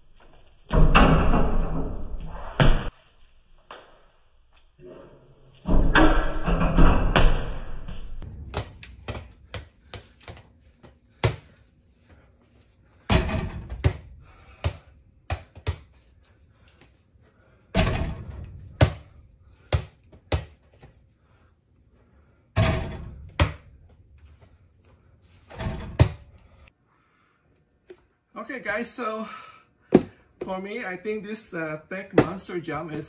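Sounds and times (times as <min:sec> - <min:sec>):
ball bouncing on floor: 0:06.7 - 0:11.6, 0:13.1 - 0:16.0, 0:17.8 - 0:20.9, 0:22.6 - 0:23.7.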